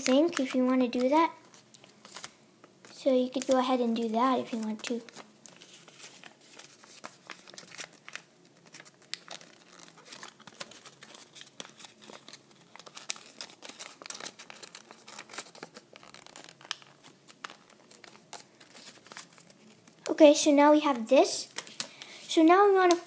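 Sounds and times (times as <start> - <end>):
paper crinkling as it is folded: 0.0 - 23.0.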